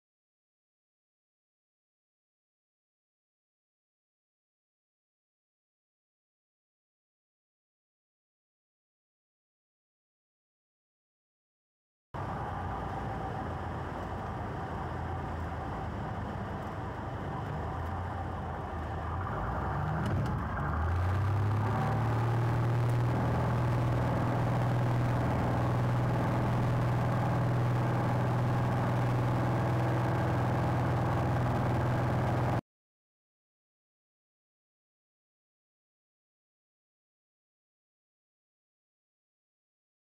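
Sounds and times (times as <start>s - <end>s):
airplane engine and propeller: 12.2s - 32.6s.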